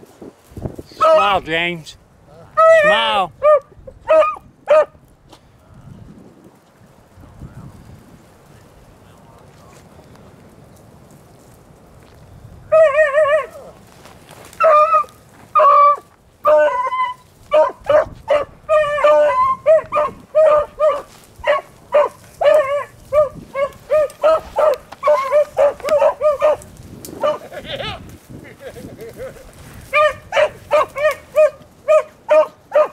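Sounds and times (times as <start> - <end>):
hounds baying and barking: 0.9 - 1.4, 2.5 - 5.0, 12.7 - 13.8, 14.5 - 28.0, 28.7 - 32.9.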